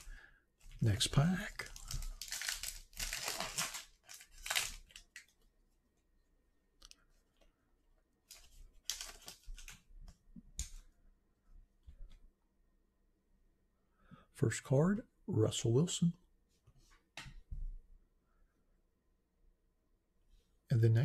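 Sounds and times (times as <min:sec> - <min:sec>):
foil crinkling: 0:01.2 - 0:05.4, 0:08.3 - 0:09.8
foil wrapper tearing and crackling: 0:01.4 - 0:05.3, 0:08.8 - 0:09.7.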